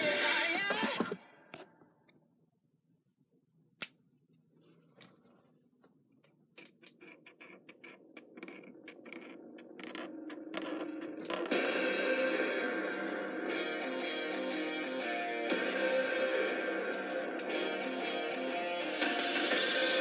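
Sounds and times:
guitar music: 11.5 - 20.0.

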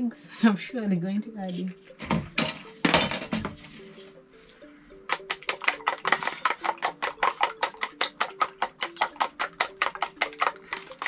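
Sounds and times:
utensil clicking against bowl: 5.1 - 11.0.

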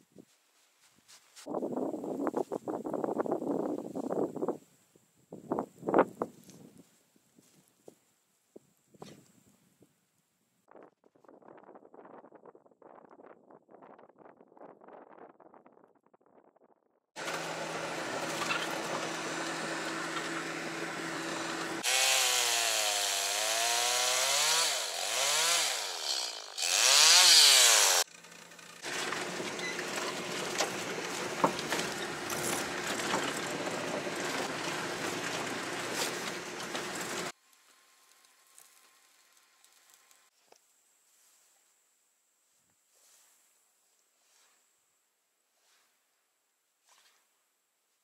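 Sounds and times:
steady engine hum: 17.2 - 21.9
chainsaw cutting wood: 17.2 - 37.3.

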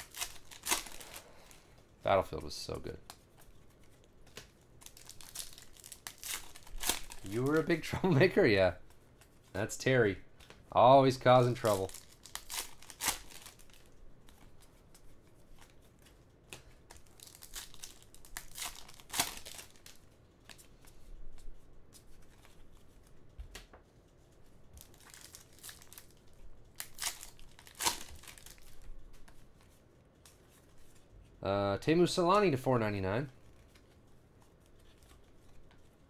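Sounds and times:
wrappers ripping: 0.0 - 1.6, 4.8 - 8.3, 11.2 - 14.4, 16.9 - 20.0, 24.8 - 28.8
card pack wrappers crinkling: 0.0 - 21.0, 24.7 - 29.6.

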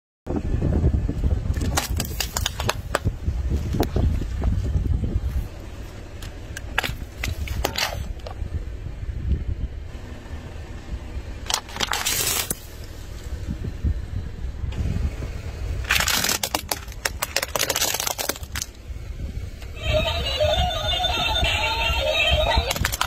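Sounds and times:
low car rumble: 0.3 - 23.0
plastic toy cars cracking: 1.5 - 3.1, 11.5 - 12.6, 15.8 - 18.8, 22.5 - 23.0.

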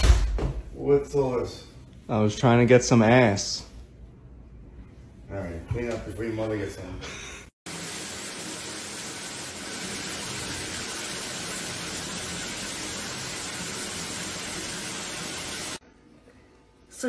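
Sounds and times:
shower water spray: 7.7 - 15.8.

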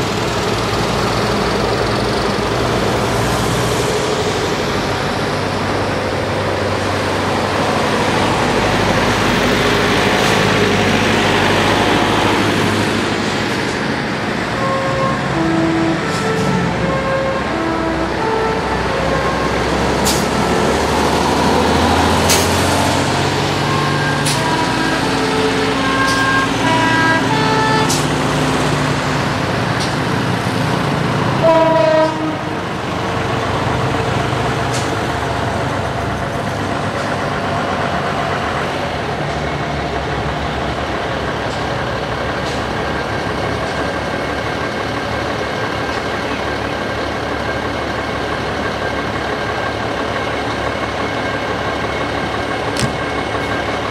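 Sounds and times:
buses driving past: 0.0 - 53.9
bus horn toot: 14.5 - 20.8, 23.6 - 28.4, 31.4 - 32.7.

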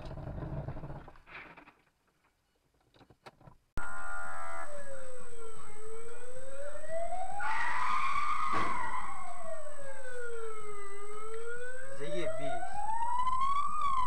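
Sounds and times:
wailing siren: 3.8 - 14.0.

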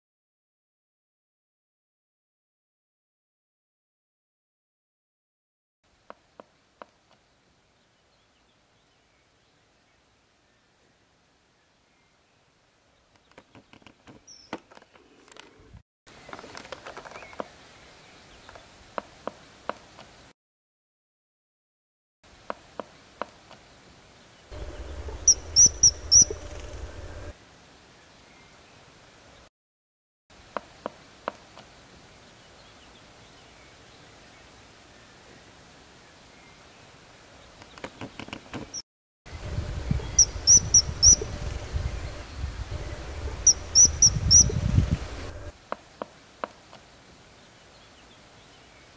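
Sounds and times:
low rumble: 24.5 - 27.3, 39.3 - 45.5
kingfisher shrill calls: 24.6 - 27.3, 40.0 - 41.4, 43.2 - 44.6.

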